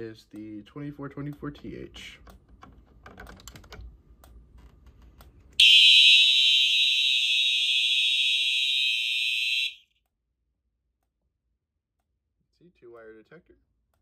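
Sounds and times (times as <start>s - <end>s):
fire alarm horns: 5.6s - 9.8s.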